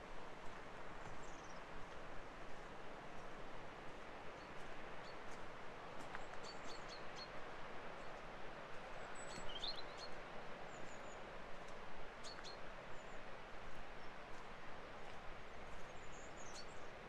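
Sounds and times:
small birds chirping: 9.2s - 11.2s.

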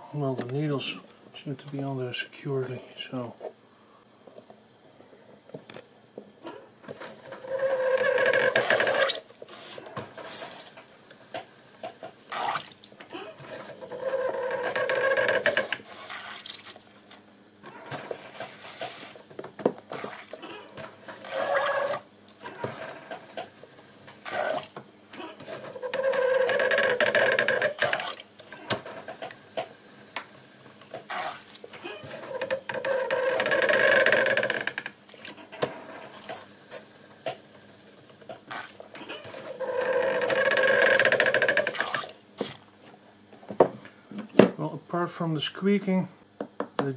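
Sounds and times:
pump squeaking: 7.4s - 10.7s, 12.3s - 16.8s, 20.0s - 22.7s, 24.2s - 28.6s, 31.1s - 35.5s, 38.5s - 42.5s.

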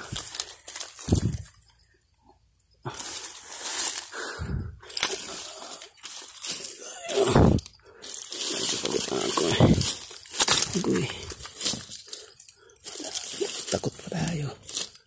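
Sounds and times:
footsteps on leaf litter: 0.0s - 1.6s, 2.9s - 4.2s, 4.9s - 7.3s, 8.0s - 12.2s, 12.9s - 15.0s.

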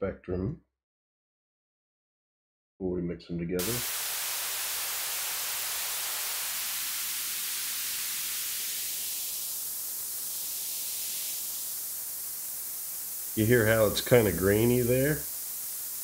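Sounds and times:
filtered synthesized noise hiss: 3.6s - 16.0s.

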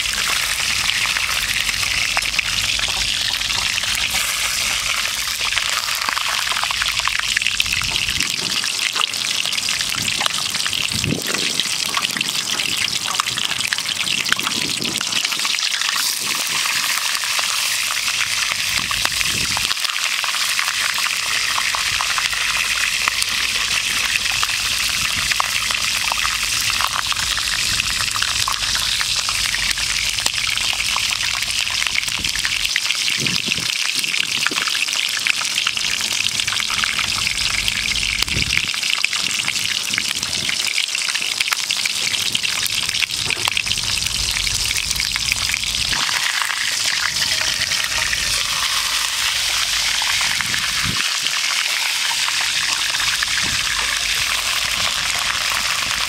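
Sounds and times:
chicken sizzling in hot oil: 0.0s - 56.0s.

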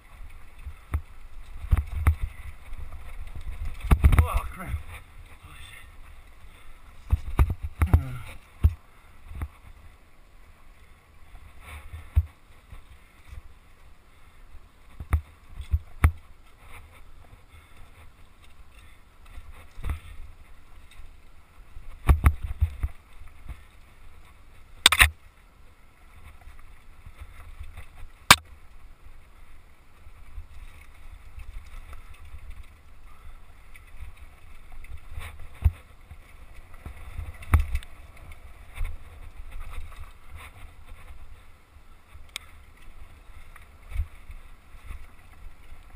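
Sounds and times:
wind rumble on microphone: 0.0s - 10.4s, 26.1s - 45.9s
bike knocking over rocks: 0.7s - 5.0s, 22.0s - 23.6s.

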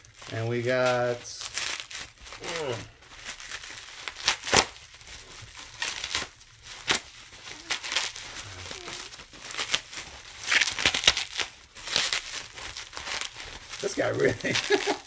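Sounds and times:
bubble wrap crinkling: 0.0s - 15.0s.

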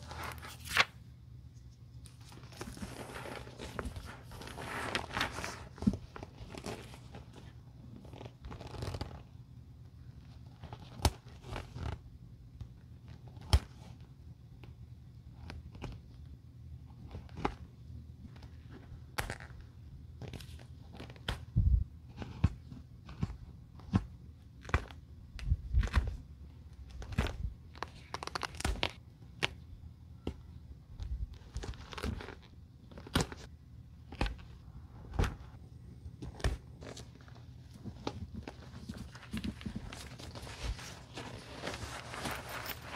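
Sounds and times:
fabric tearing: 8.1s - 9.2s.

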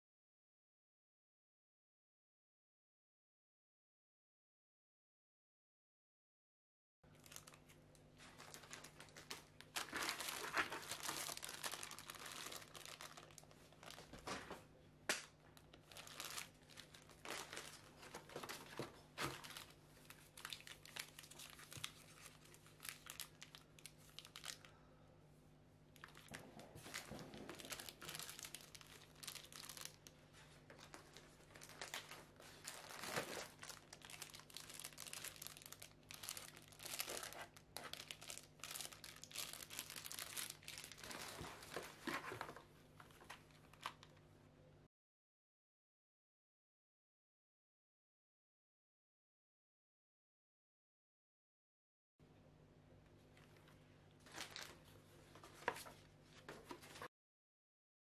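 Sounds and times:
plastic wrappers crinkling: 7.1s - 14.5s, 15.6s - 24.7s, 26.0s - 44.2s, 54.2s - 57.1s.

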